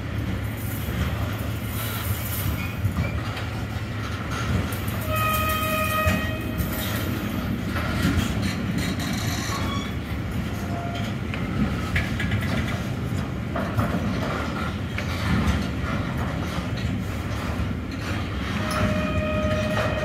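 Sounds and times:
train wheels rumbling on rails: 0:00.0 - 0:20.0
wheels clacking over rail joints: 0:00.0 - 0:20.0
high wheel squeals: 0:05.0 - 0:06.9, 0:09.0 - 0:10.1, 0:18.6 - 0:20.0.

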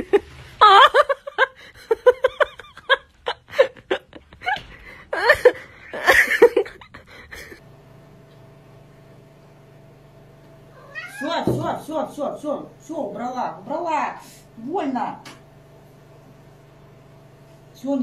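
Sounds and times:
person laughing: 0:00.0 - 0:07.6.

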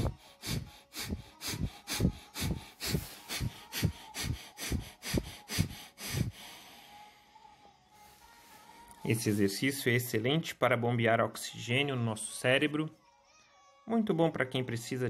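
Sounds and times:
man breathing forcefully through nose: 0:00.0 - 0:07.1.

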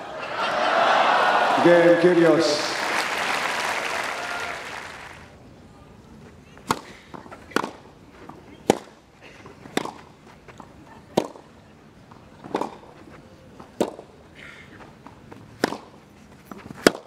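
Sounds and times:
tennis ball struck by rackets: 0:06.6 - 0:07.8, 0:08.6 - 0:09.0, 0:09.7 - 0:10.1, 0:11.1 - 0:11.4, 0:12.4 - 0:12.9, 0:13.7 - 0:14.1, 0:15.6 - 0:17.0.

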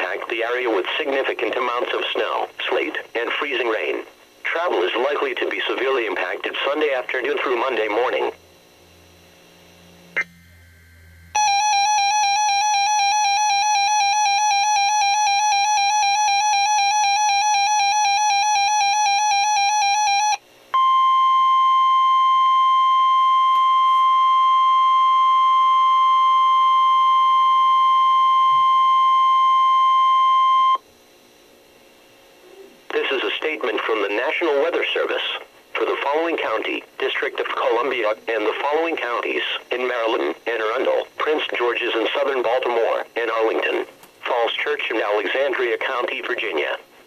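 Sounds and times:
steady warning alarm tone: 0:04.5 - 0:30.9
warbling two-tone alert signal: 0:10.2 - 0:23.5.

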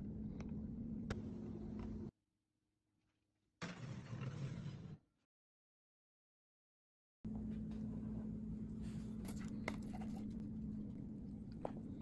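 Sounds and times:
steady low hum: 0:00.0 - 0:02.1, 0:07.3 - 0:12.0.

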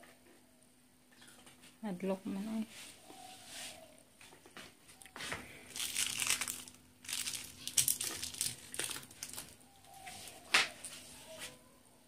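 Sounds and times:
cat crunching dry kibble: 0:05.6 - 0:09.6.

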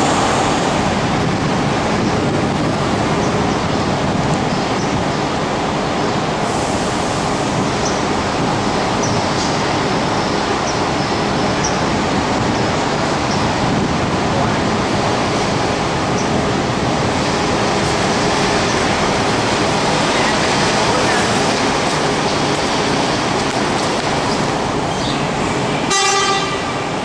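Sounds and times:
bus engine running: 0:00.0 - 0:27.0
traffic noise: 0:00.0 - 0:27.0.

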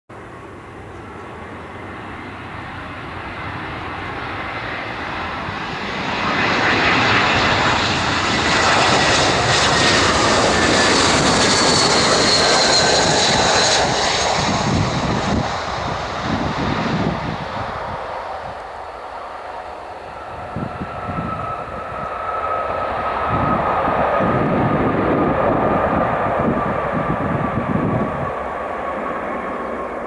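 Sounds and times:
jet engines on approach: 0:00.1 - 0:30.0
high fan whine: 0:14.7 - 0:28.8.

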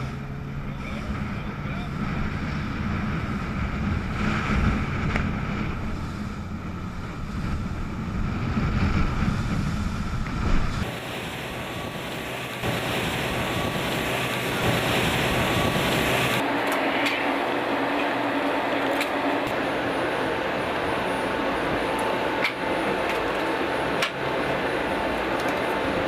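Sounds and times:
wind buffeting microphone: 0:00.0 - 0:16.5
boat engine drone: 0:00.0 - 0:26.0
water rushing past hull: 0:00.0 - 0:26.0.

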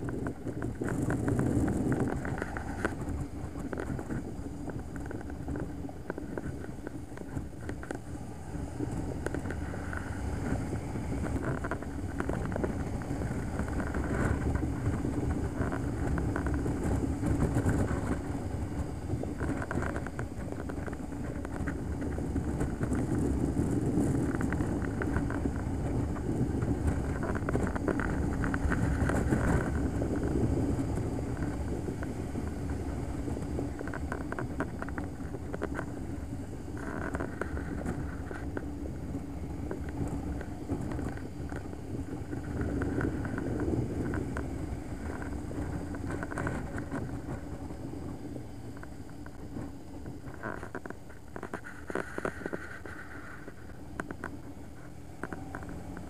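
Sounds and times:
motorcycle engine drone: 0:00.0 - 0:56.0
wind rushing over microphone: 0:00.0 - 0:56.0.

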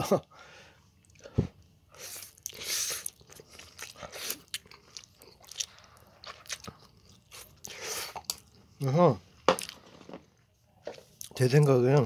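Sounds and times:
person chewing noodles: 0:00.9 - 0:08.7, 0:09.5 - 0:09.8.

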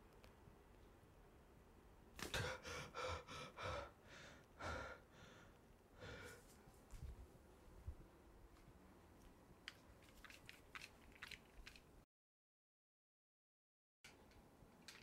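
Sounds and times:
man gasping for breath: 0:02.2 - 0:06.5.

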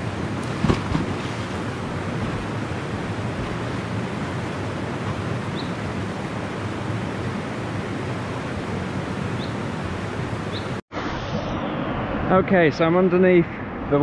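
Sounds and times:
waterfall and river rapids: 0:00.0 - 0:11.2.

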